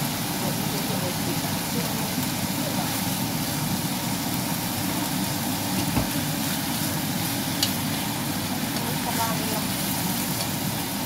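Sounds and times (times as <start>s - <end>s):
meat sizzling in oil: 0.0s - 11.0s
tongs clicking on pan: 7.6s - 7.8s, 8.7s - 9.1s, 9.7s - 10.6s.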